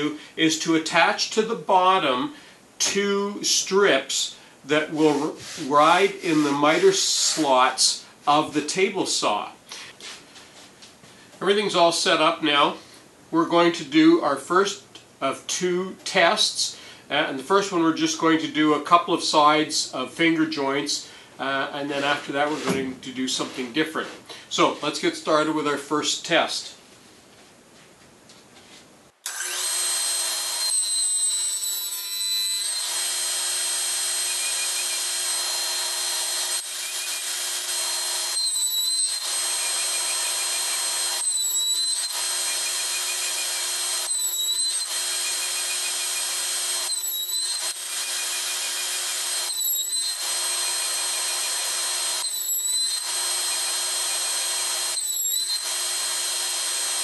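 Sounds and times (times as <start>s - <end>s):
table saw whining: 29.2s - 57.0s.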